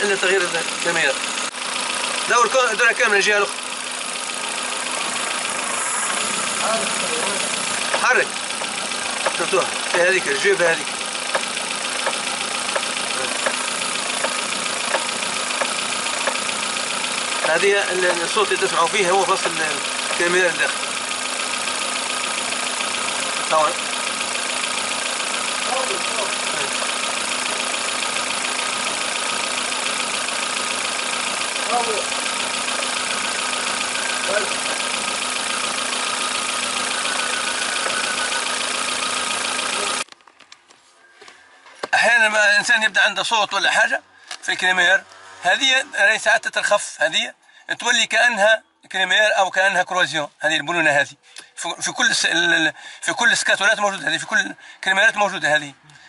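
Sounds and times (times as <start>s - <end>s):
car engine idling: 0.0s - 40.1s
steering rack knocking: 7.2s - 10.2s, 11.0s - 18.4s.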